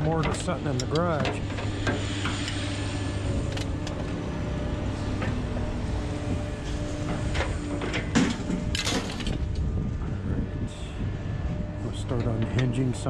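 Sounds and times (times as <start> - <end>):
scrap steel clanking on pile: 0.0 - 2.6, 7.0 - 9.4
vehicle engine idling: 0.0 - 13.0.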